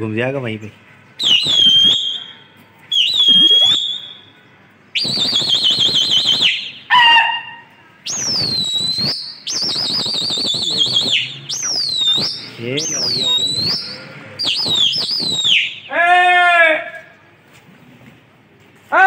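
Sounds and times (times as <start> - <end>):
shrill whistles: 1.2 - 16.0.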